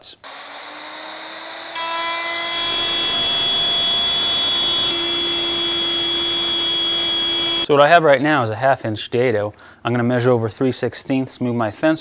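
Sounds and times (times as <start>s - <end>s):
router motor whining: 0.2s - 7.7s.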